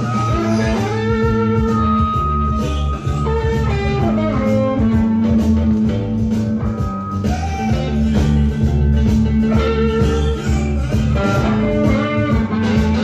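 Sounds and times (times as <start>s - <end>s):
blues band backing: 0.0s - 13.0s
electric guitar lead lines: 0.0s - 13.0s.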